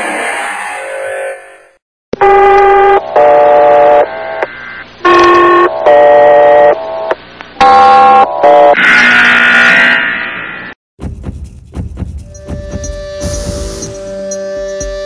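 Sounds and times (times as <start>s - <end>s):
background music: 11.0s - 15.0s
loud sustained electronic chords: 12.2s - 15.0s.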